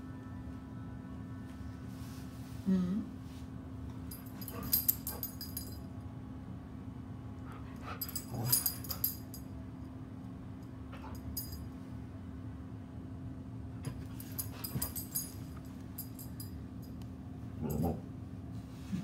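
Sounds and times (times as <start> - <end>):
collar tags jingling: 4.1 - 5.9, 7.8 - 9.5, 10.9 - 11.7, 13.9 - 17.0.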